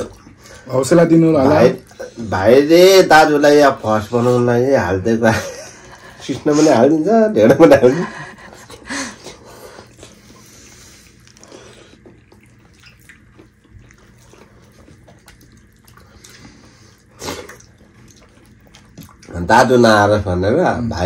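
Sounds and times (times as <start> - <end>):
wet chewing and lip smacks: 8.6 - 19.4.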